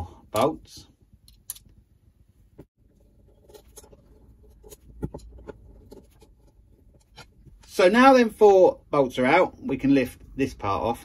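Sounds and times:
screwdriver scratching and clicking: 3.3 - 7.4.

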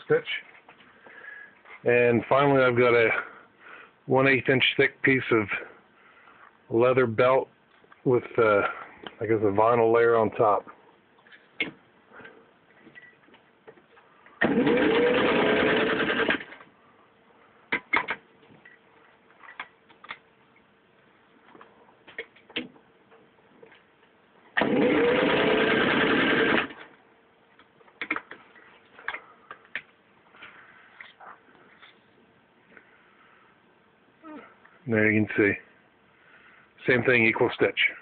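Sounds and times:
sewing machine motor whining: 14.4 - 16.4, 24.6 - 26.7.

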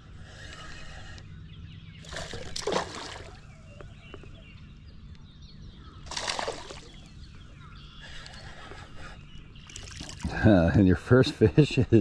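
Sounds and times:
low steady hum: 0.0 - 12.0
fish splashing in water: 2.0 - 3.4, 6.1 - 7.1.

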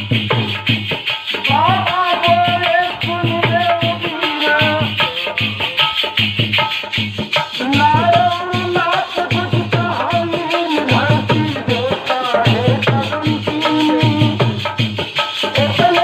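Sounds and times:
hand drum beating: 0.0 - 16.0
high jingling percussion: 0.0 - 16.0
man singing through a microphone: 1.4 - 6.2, 7.4 - 14.8, 15.4 - 16.0.

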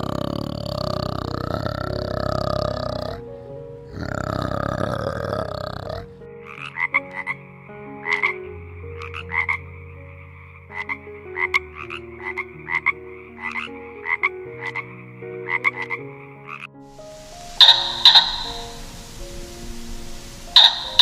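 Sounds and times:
frog croaking: 0.0 - 21.0.

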